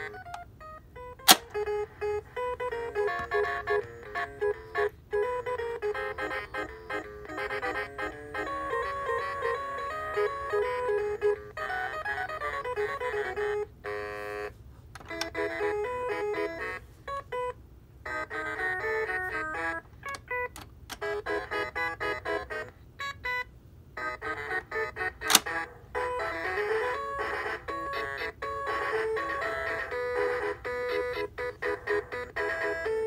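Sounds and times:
toy piano electronic melodies: 0:00.0 - 0:33.0
plastic click: 0:25.2 - 0:25.6.

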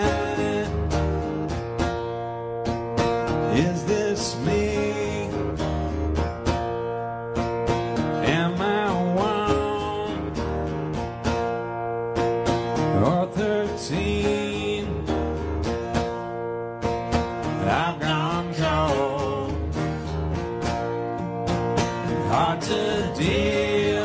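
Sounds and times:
man singing: 0:00.0 - 0:01.3, 0:03.4 - 0:05.8, 0:08.2 - 0:10.6, 0:12.8 - 0:15.4, 0:17.4 - 0:19.9, 0:22.0 - 0:24.0
acoustic guitars playing: 0:00.0 - 0:24.0.

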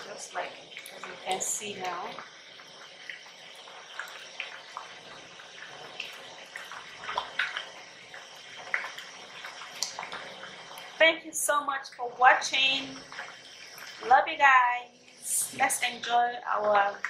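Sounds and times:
small pops and splashes: 0:00.7 - 0:01.5, 0:02.1 - 0:11.0.

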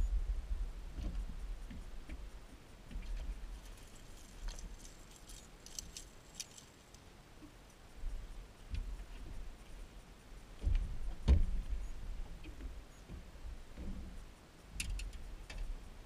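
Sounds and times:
low rumble: 0:00.0 - 0:05.2
fishing tackle clicks and rattles: 0:03.6 - 0:07.1.

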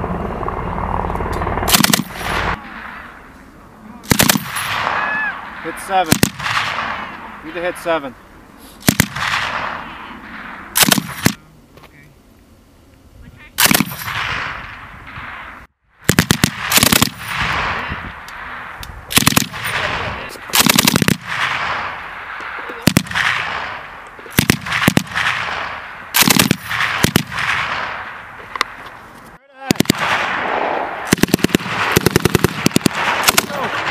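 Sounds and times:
gunfire echo: 0:01.6 - 0:03.3, 0:04.0 - 0:08.2, 0:08.8 - 0:11.4, 0:13.6 - 0:29.0, 0:29.6 - 0:33.9
machine gun bursts: 0:01.7 - 0:02.4, 0:04.1 - 0:04.8, 0:10.8 - 0:11.4, 0:13.6 - 0:14.2, 0:16.1 - 0:17.4, 0:19.1 - 0:21.3, 0:26.2 - 0:27.3.

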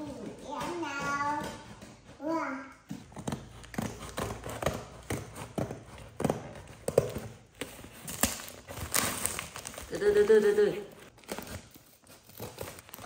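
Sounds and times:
taps and scrapes on cardboard box: 0:00.0 - 0:08.8
scissors snipping packing tape: 0:03.1 - 0:09.9, 0:11.1 - 0:13.0.

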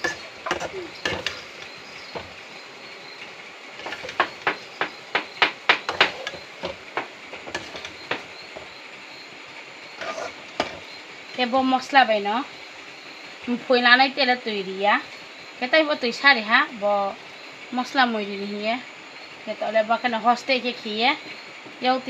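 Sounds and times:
metal spoon scraping steel pan: 0:00.0 - 0:02.4, 0:03.8 - 0:04.8, 0:05.9 - 0:06.8, 0:07.4 - 0:08.7, 0:10.0 - 0:10.9
steady hiss: 0:00.0 - 0:22.0.

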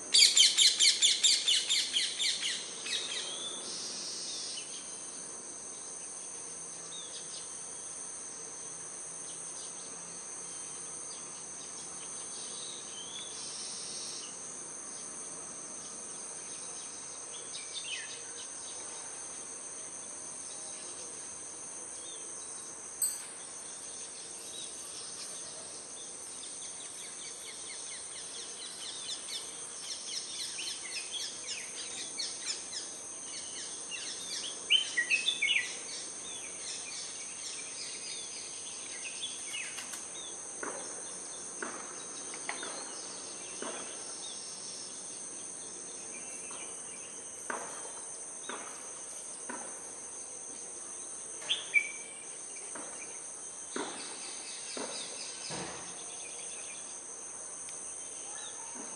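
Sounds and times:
insects droning: 0:00.0 - 0:58.9.

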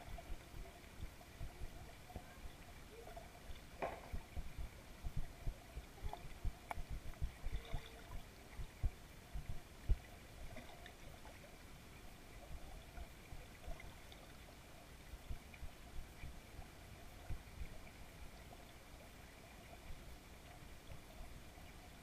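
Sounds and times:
faint steady hum: 0:00.0 - 0:22.0
muffled underwater thumps: 0:03.7 - 0:08.0, 0:08.6 - 0:10.1.

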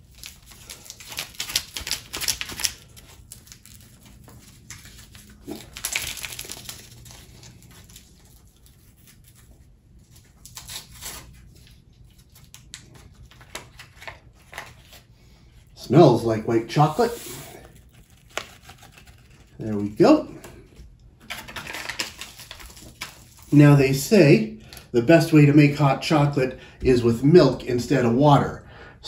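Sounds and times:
packet crinkling and tearing: 0:00.0 - 0:15.1, 0:17.6 - 0:20.0, 0:21.2 - 0:23.6.

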